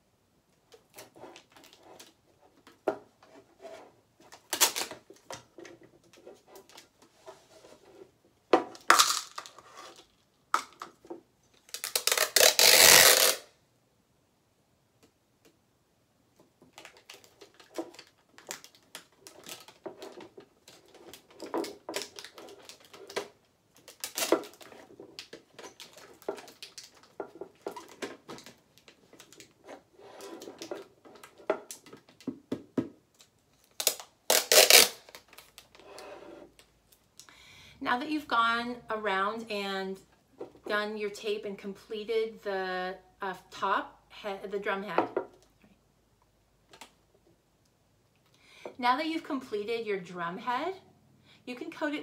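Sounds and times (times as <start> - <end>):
packing tape pulled off: 4.5 - 5.0, 11.7 - 13.5, 21.9 - 27.0, 33.6 - 35.7
handling clicks and scrapes: 16.7 - 32.2.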